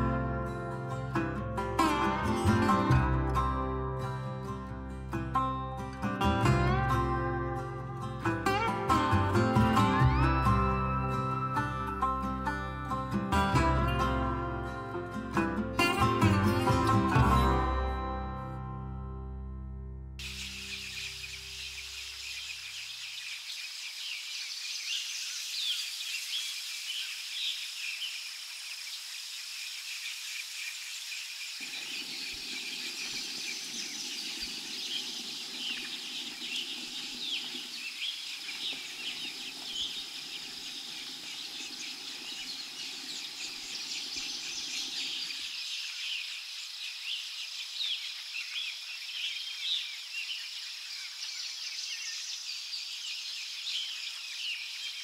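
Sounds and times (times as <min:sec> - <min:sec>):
forest birds chirping: 0:04.0 - 0:17.4, 0:20.2 - 0:55.0
steady high tone: 0:09.7 - 0:12.9.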